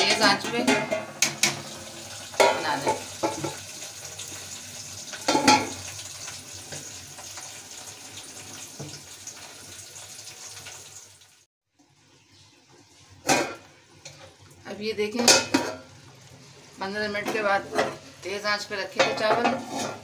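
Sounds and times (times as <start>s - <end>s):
metal lid clank: 0.0s - 1.7s
pot boiling with watery hiss: 0.8s - 20.0s.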